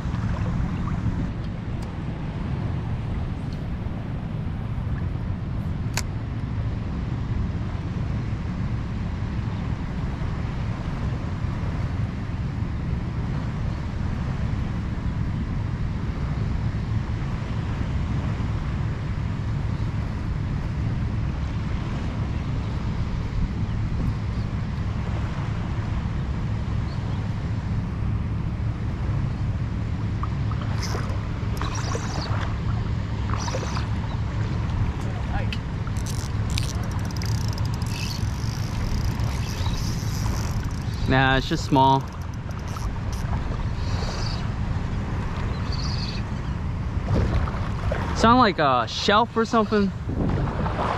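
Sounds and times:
shallow surf water: 0.0s - 50.9s
clicks and rustles: 35.5s - 41.1s, 42.0s - 43.3s
wind buffeting microphone: 49.7s - 50.9s.

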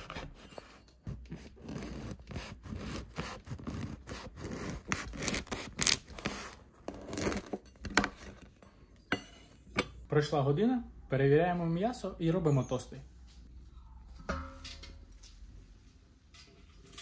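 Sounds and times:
knife sawing through bread crust: 1.1s - 6.6s.

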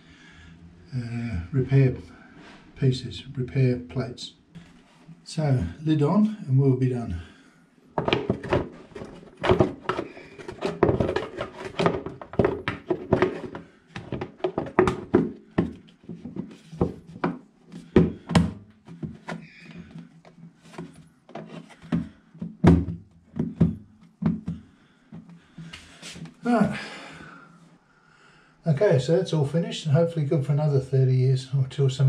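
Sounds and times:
cistern lid knocks and scrapes: 8.0s - 19.4s.

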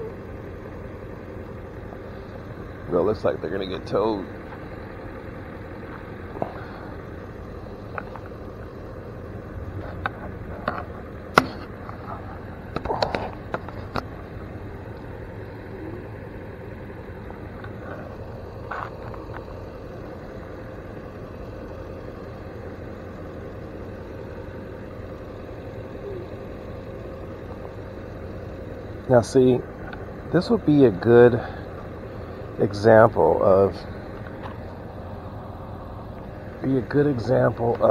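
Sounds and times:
vehicle engine idling: 0.0s - 37.9s
sharp clicks and knocks: 9.8s - 14.1s.

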